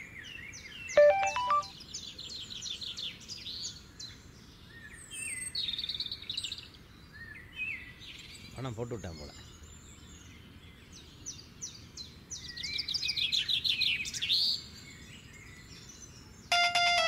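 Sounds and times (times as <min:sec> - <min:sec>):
phone message alert beeps: 0:01.0 - 0:01.7, 0:16.5 - 0:17.0.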